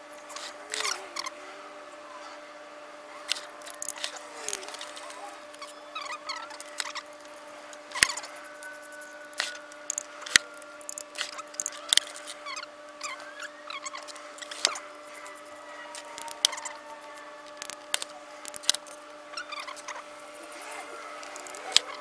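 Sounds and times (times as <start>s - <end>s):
steady low hum: 2.6s - 22.0s
torque wrench clicks: 3.3s - 4.8s, 6.6s - 12.4s, 14.1s - 19.0s, 21.2s - 21.9s.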